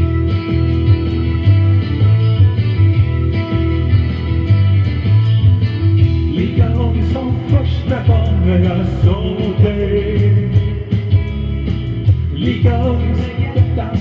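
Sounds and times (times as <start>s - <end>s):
rock music on electric guitars: 0.0s - 14.0s
person singing: 6.2s - 11.3s, 12.3s - 14.0s.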